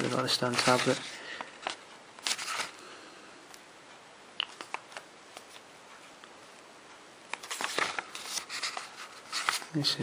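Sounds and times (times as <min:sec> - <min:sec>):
paper pages rustling: 0:00.0 - 0:02.8, 0:07.3 - 0:10.0.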